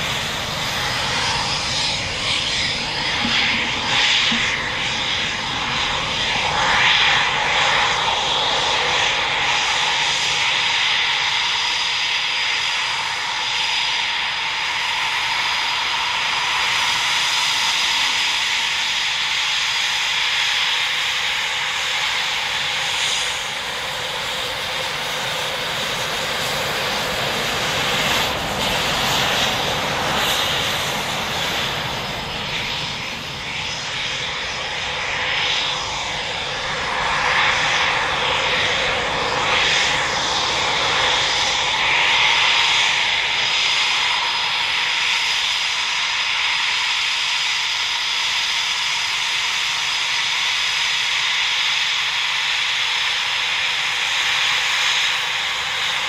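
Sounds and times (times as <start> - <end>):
continuous rushing noise: 0.0 - 56.0
high-pitched jet whine: 0.0 - 56.0.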